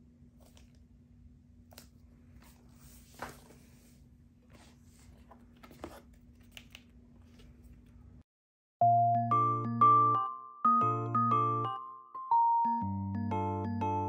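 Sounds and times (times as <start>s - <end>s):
cardboard and paper rustling: 1.8s - 8.0s
cardboard scrape: 2.4s - 6.2s.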